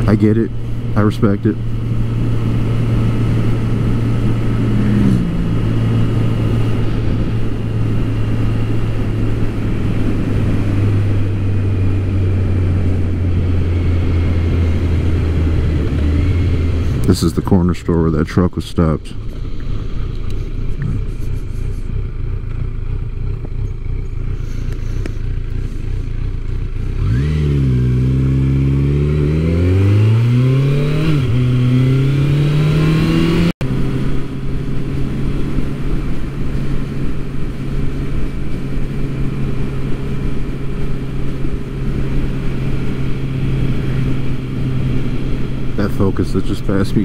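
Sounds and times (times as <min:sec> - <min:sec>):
wind rush: 0:00.0 - 0:17.3
motorcycle engine accelerating: 0:00.0 - 0:47.0.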